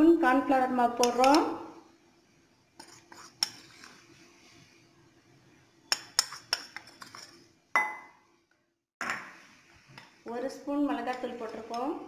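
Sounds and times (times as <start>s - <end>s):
kitchenware tapping glass bowl: 7.8s - 8.2s.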